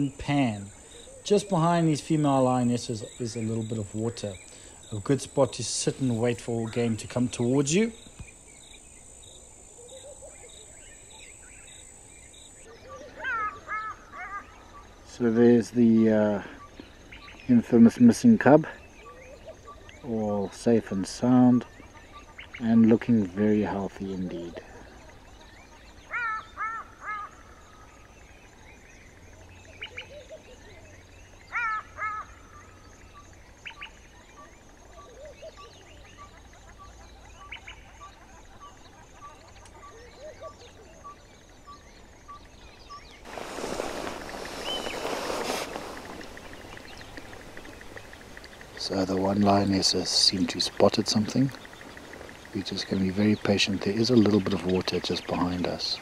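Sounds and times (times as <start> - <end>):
faint high insect buzz: 0.0 - 12.7, 41.2 - 56.0
bird calling: 0.0 - 17.8, 18.4 - 28.2, 28.9 - 56.0
insect chirp: 0.0 - 56.0
short bird chirps: 43.3 - 48.8.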